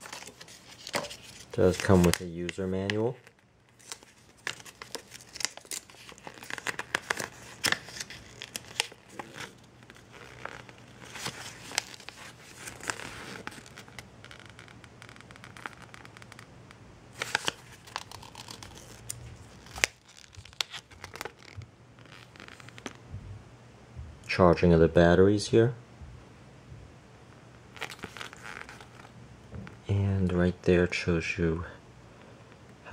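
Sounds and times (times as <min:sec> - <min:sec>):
paper rustling and crinkling: 0:00.0 - 0:16.4, 0:17.1 - 0:23.0, 0:27.7 - 0:29.8.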